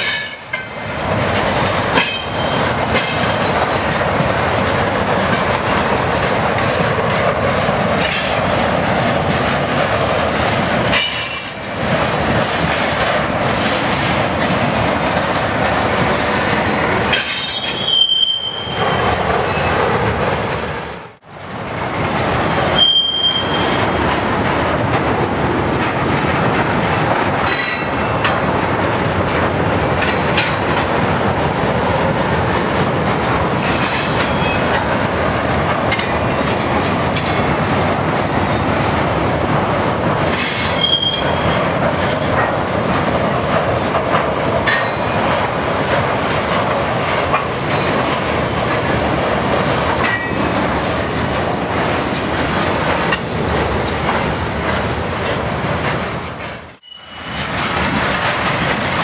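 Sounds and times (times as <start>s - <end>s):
high wheel squeals: 0.0s - 1.0s, 11.0s - 11.9s, 17.3s - 19.8s, 22.8s - 23.9s, 40.4s - 41.6s, 56.7s - 57.5s
train wheels rumbling on rail: 0.0s - 59.0s
clicks over rail joints: 41.8s - 48.9s.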